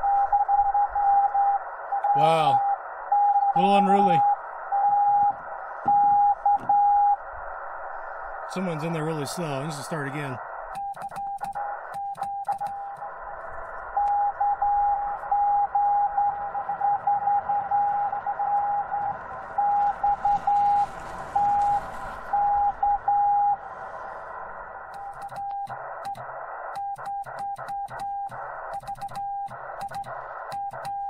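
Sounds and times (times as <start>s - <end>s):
morse code beeps: 0.0s - 7.2s, 8.5s - 13.0s, 13.9s - 23.6s, 25.0s - 31.0s
radio receiver hiss: 0.6s - 31.0s
sharp clicks: 10.7s - 13.1s, 24.9s - 31.0s.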